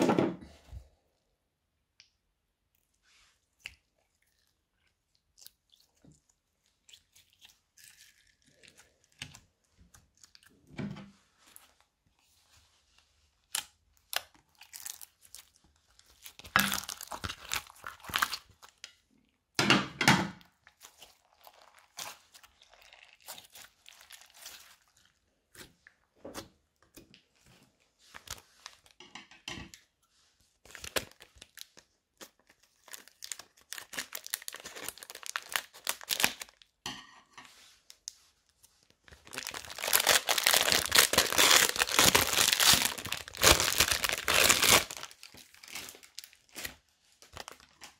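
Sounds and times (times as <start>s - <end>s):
slime squelching and popping: 13.5s - 19.0s, 20.5s - 27.0s, 39.1s - 47.9s
plastic package crinkling: 14.0s - 18.8s, 30.7s - 36.7s, 39.1s - 47.9s.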